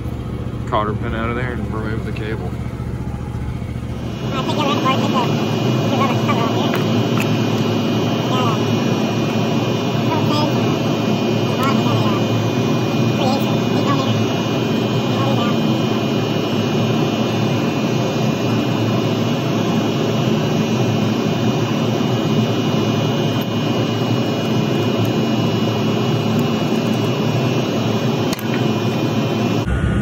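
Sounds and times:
loud rushing machine noise: 0.0s - 20.3s.

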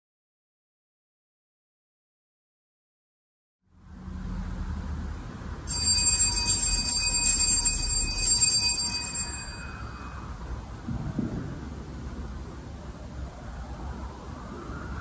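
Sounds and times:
small high-pitched bell ringing: 5.7s - 10.6s.

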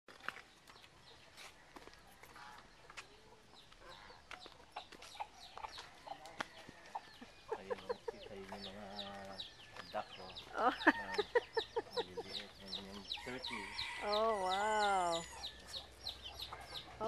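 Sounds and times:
chickens clucking: 0.3s - 17.0s
high chirping calls: 7.0s - 17.0s.

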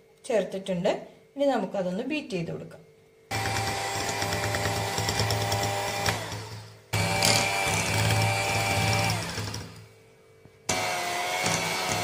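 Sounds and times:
electric hand mixer running: 3.3s - 9.9s, 10.7s - 12.0s.

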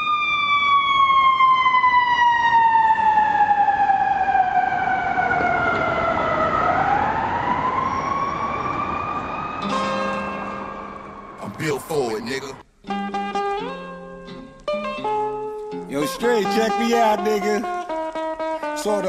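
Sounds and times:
siren wailing: 0.0s - 12.6s.

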